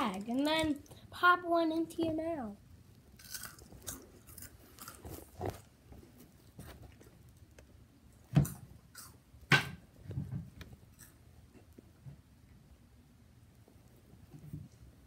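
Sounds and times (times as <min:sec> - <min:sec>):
chewing crunchy chips: 0:03.1 - 0:05.8, 0:08.9 - 0:09.2.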